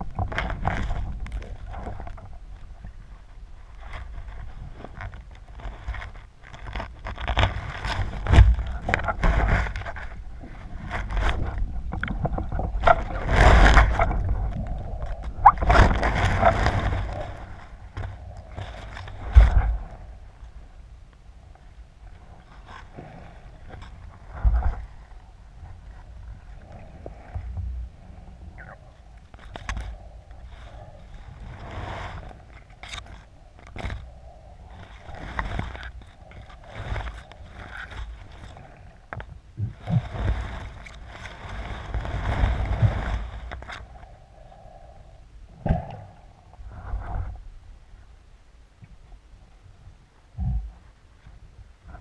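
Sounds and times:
underwater water swishing: 0:00.0 - 0:52.0
underwater rushing of water: 0:07.3 - 0:20.9, 0:39.6 - 0:43.8
seaweed scraping camera housing: 0:32.2 - 0:38.6.

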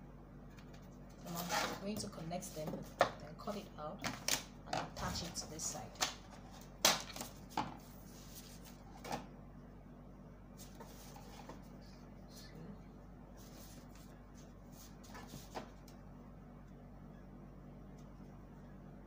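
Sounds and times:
paper rustling: 0:06.4 - 0:09.2.

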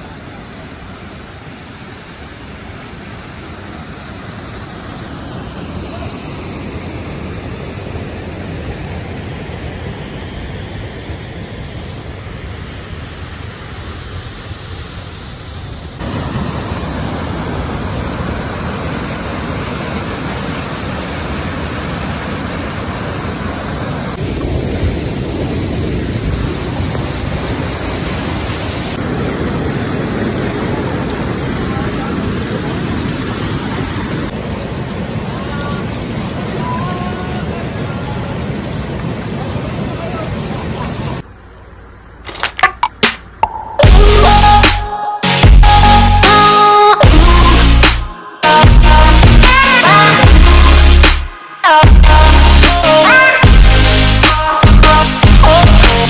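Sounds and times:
small waterfall: 0:00.0 - 0:42.1
river water rushing: 0:00.0 - 0:42.2.

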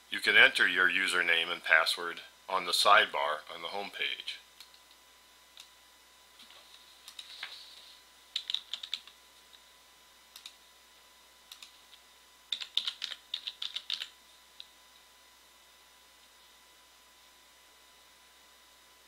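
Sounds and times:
keyboard typing: 0:08.3 - 0:09.2, 0:11.5 - 0:11.8, 0:12.5 - 0:14.1.

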